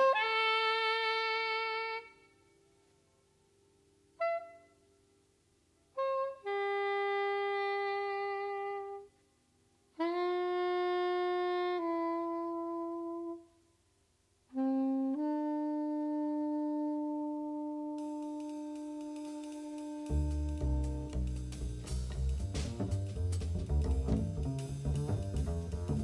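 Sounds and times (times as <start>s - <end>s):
saxophone long held notes: 0.0s - 2.4s, 4.2s - 4.8s, 5.9s - 9.1s, 10.0s - 13.5s, 14.5s - 22.8s.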